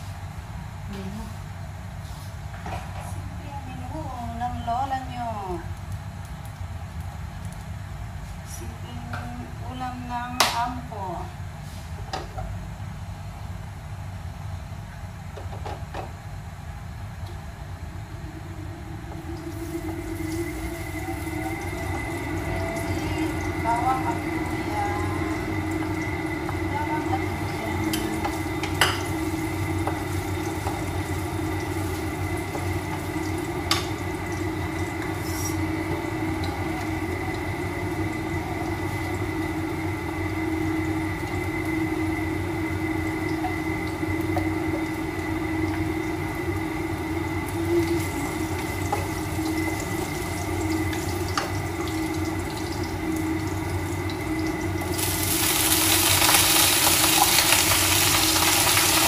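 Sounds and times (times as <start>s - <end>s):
steady hum: 0.0s - 59.0s
oil sizzling in a wok: 17.5s - 59.0s.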